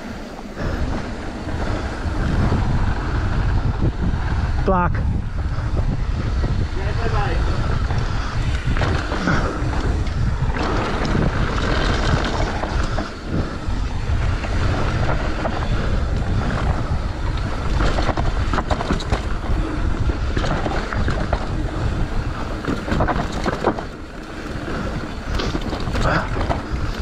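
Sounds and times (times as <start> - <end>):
bike rattles and clicks: 0.0 - 27.0
wind buffeting microphone: 0.0 - 27.0
tyres rolling on gravel: 6.6 - 27.0.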